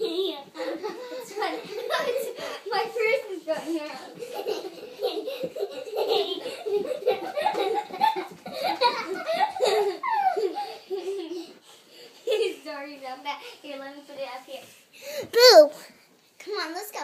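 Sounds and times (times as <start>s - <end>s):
young children laughing: 0.0s - 3.2s, 4.0s - 12.6s.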